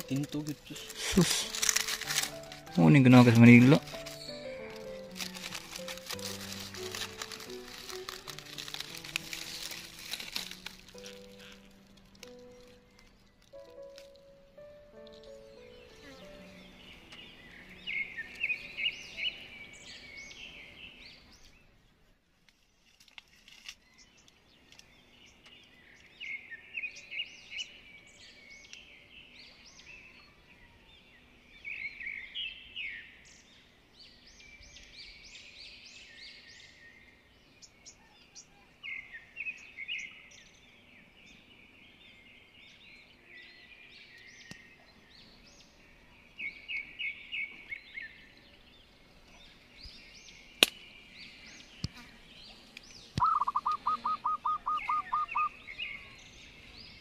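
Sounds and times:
high-pitched chirps: 53.2 - 55.5.

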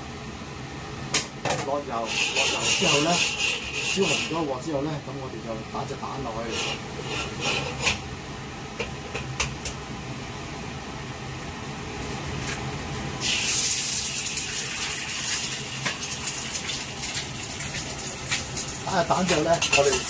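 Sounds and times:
egg sizzling in hot oil: 13.2 - 20.0.

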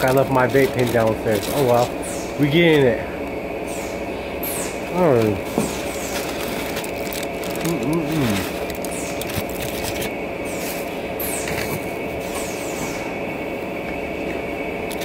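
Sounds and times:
steady mechanical hum: 0.0 - 15.0
aluminium foil crinkling: 5.2 - 10.1.

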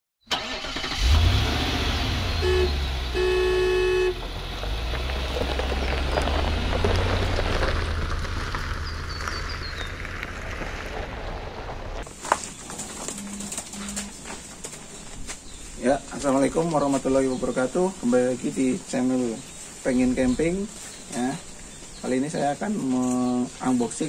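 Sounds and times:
van engine running: 0.3 - 9.8
horn toots: 2.0 - 4.2.

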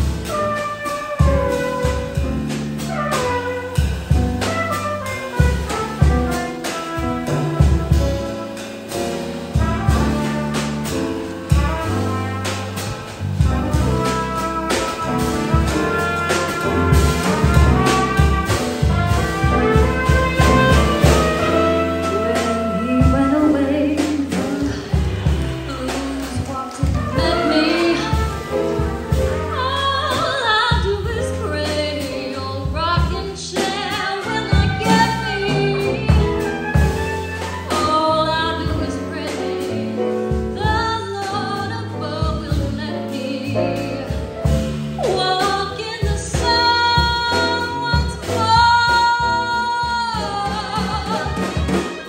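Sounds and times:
drums: 0.0 - 52.0
piano: 0.0 - 52.0
trumpet: 0.0 - 52.0
walking bass line: 9.5 - 38.9
saxophone: 9.9 - 31.0, 48.9 - 52.0.

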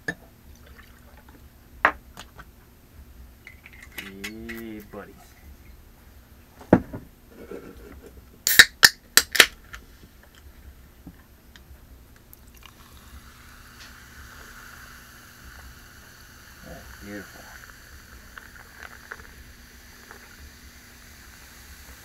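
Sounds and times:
fizzing hiss: 12.3 - 22.0
soda poured over ice: 12.3 - 22.0.

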